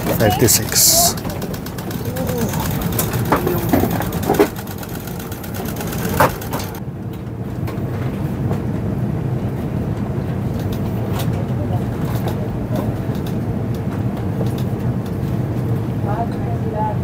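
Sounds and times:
cabin ventilation hum: 0:00.0 - 0:06.8.

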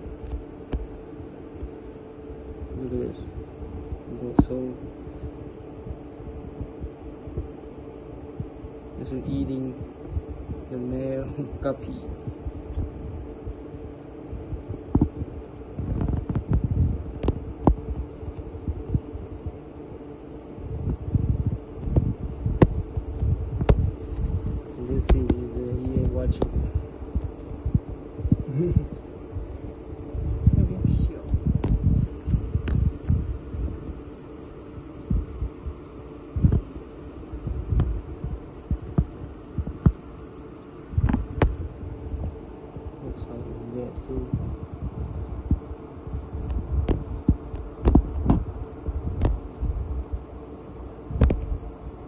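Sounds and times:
steady low hum: 0:00.0 - 0:52.0
low irregular thumps: 0:14.4 - 0:19.6, 0:20.6 - 0:34.0, 0:34.8 - 0:40.1, 0:44.3 - 0:50.3.

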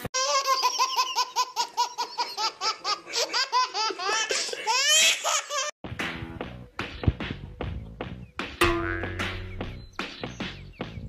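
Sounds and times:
baby laughing: 0:00.2 - 0:05.8.

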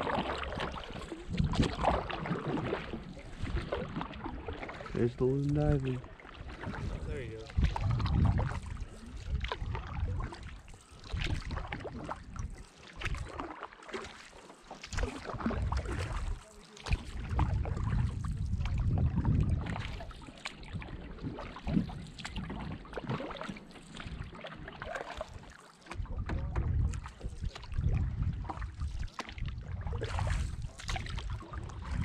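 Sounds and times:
paddle splashing water: 0:00.0 - 0:32.0
wind buffeting microphone: 0:01.1 - 0:04.0, 0:06.6 - 0:13.4, 0:17.0 - 0:21.0, 0:26.0 - 0:32.0.

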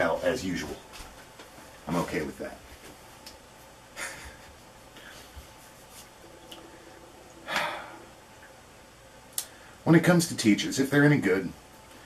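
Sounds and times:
man breathing noisily: 0:06.5 - 0:08.2.

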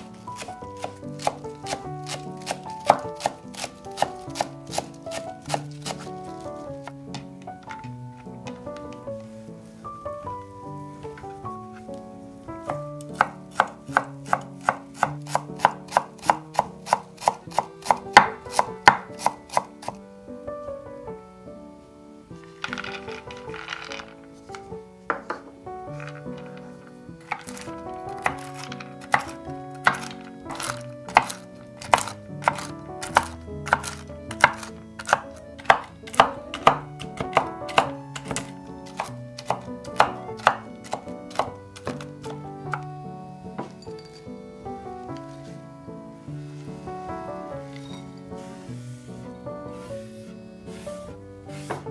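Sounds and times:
knife chopping on wooden board: 0:00.0 - 0:06.2, 0:12.7 - 0:20.0, 0:27.2 - 0:42.9, 0:51.5 - 0:51.9
quiet background music: 0:00.0 - 0:51.9.

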